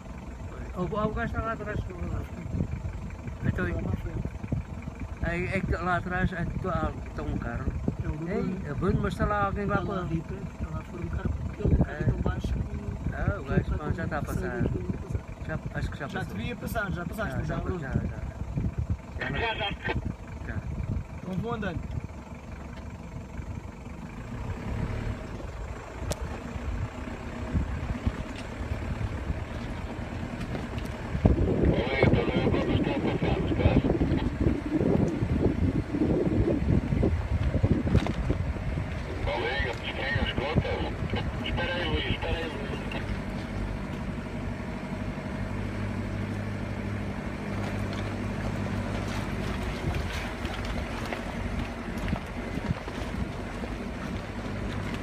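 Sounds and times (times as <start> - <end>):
engine and drivetrain rumble: 0.0 - 55.0
stones crackling under tyres: 25.2 - 31.3, 37.2 - 39.9, 47.2 - 55.0.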